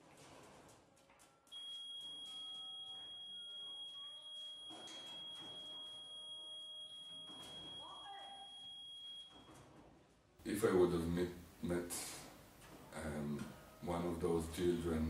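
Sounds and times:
high-pitched electronic alarm tone: 0:01.7 - 0:09.6.

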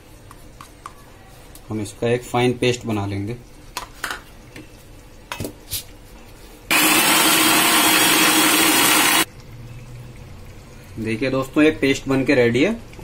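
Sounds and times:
mixer grinder running: 0:06.7 - 0:09.3.

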